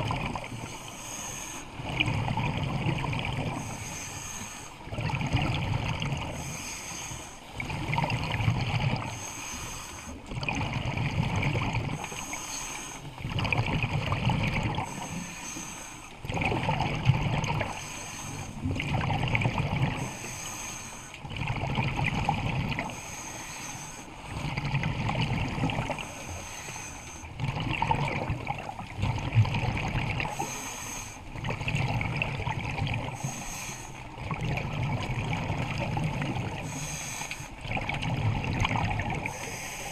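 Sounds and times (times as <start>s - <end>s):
exhaled bubbles gurgling underwater: 0.0s - 39.9s
regulator inhalation hiss: 22.9s - 24.0s, 26.1s - 27.3s, 30.3s - 31.2s, 33.2s - 34.0s.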